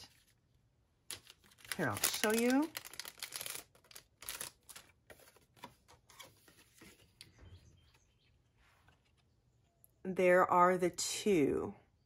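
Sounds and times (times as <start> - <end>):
plastic bag rustling: 1.1 - 5.6
bird chirps: 7.2 - 10.1.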